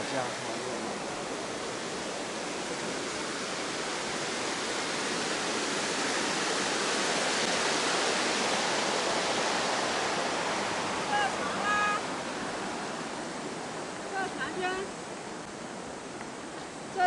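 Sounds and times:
water rushing over a weir: 0:00.0 - 0:17.0.

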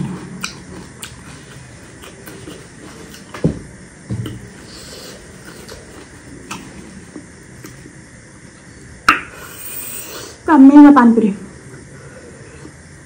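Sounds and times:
close-up chewing: 0:00.2 - 0:03.4, 0:04.2 - 0:08.0.

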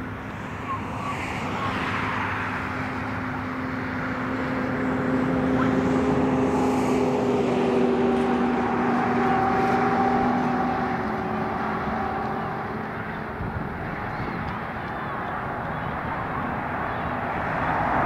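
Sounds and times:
jet on approach droning: 0:00.0 - 0:18.0.

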